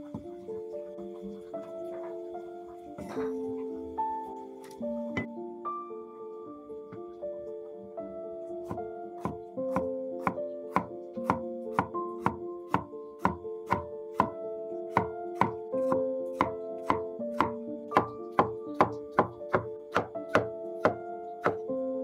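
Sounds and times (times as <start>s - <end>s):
soft music with held notes: 0.0s - 22.0s
cleaver knocking on chopping board: 8.7s - 14.3s, 14.9s - 21.6s.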